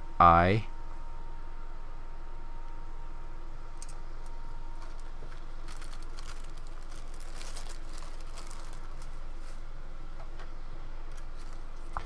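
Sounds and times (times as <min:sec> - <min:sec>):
plastic bag crinkling: 0:04.8 - 0:09.5.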